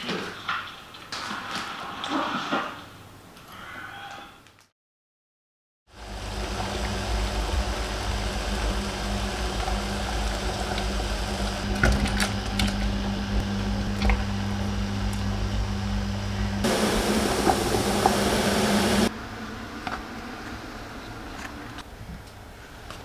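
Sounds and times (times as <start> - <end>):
kitchen appliance whirring: 5.9 - 19.1.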